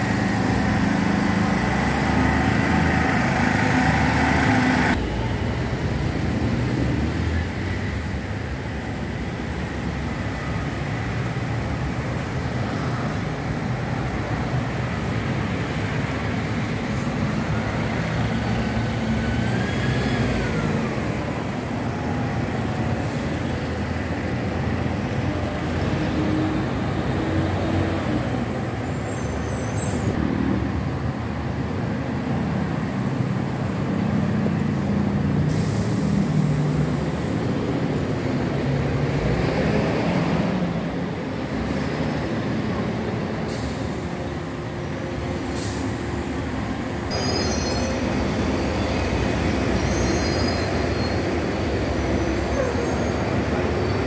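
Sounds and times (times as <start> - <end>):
buses and cars passing: 0.0 - 54.0
high squeal sliding down: 47.1 - 54.0.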